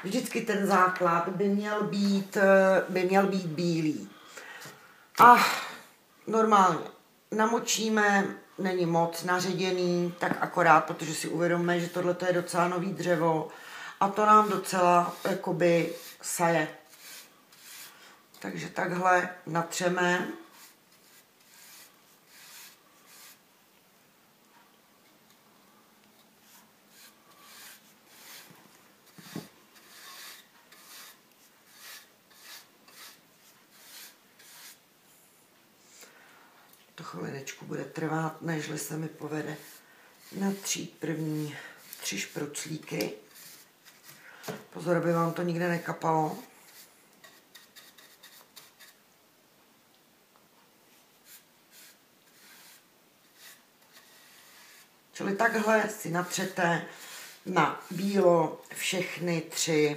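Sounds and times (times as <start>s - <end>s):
paintbrush strokes on wood: 14.0s - 18.0s, 19.7s - 23.4s, 26.4s - 35.5s, 38.3s - 49.0s, 50.9s - 58.8s.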